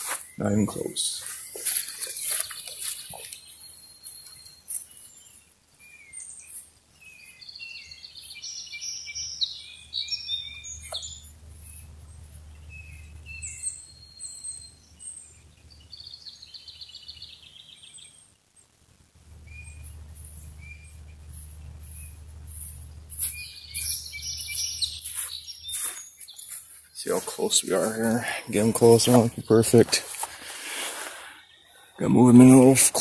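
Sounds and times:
songbirds singing: 0:00.0 - 0:33.0
low steady rumble: 0:10.7 - 0:14.2, 0:18.9 - 0:24.4.

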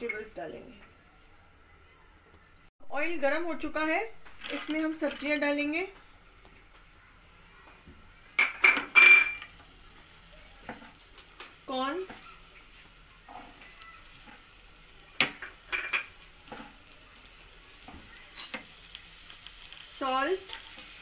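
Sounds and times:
vegetables sizzling in hot oil: 0:03.7 - 0:21.0
corn kernels clattering into pan: 0:04.2 - 0:05.4.

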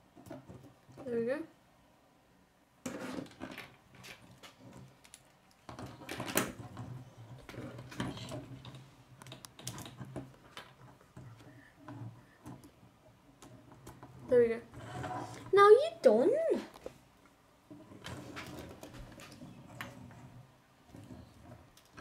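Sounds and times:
plastic parts clicking and rattling: 0:03.0 - 0:14.3, 0:20.9 - 0:22.0.

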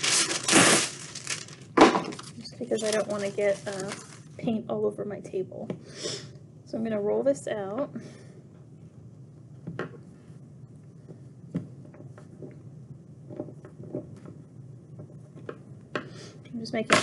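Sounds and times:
quiet room hum: 0:00.0 - 0:17.0.

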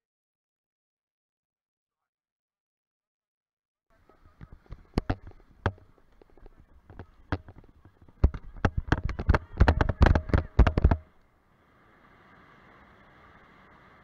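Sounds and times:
faint rush of wind: 0:04.0 - 0:14.0.

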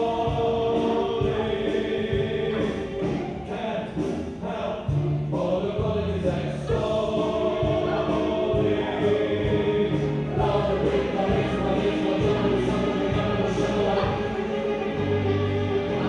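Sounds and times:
choir singing held notes: 0:00.0 - 0:16.0.

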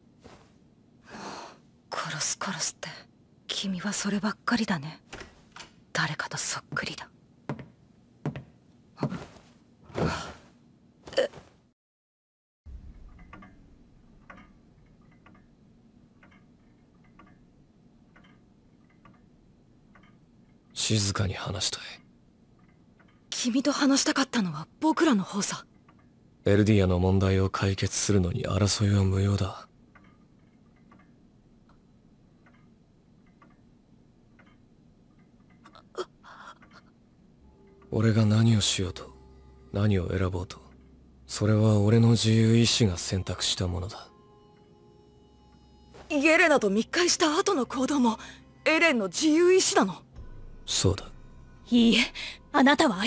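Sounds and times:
pendulum clock ticking: 0:12.7 - 0:53.0.

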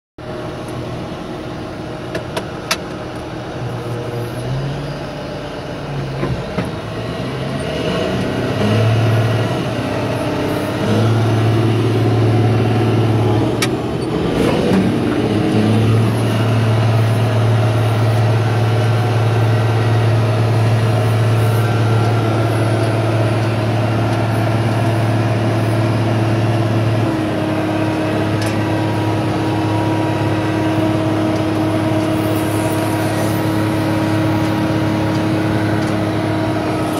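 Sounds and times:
diesel engine running: 0:00.2 - 0:36.9.

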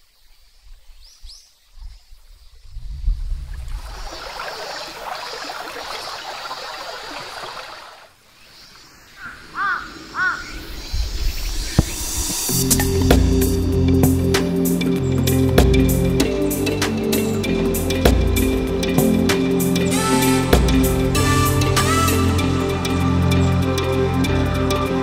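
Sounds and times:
stream babbling over rocks: 0:03.6 - 0:08.2
crow cawing: 0:09.2 - 0:10.6.

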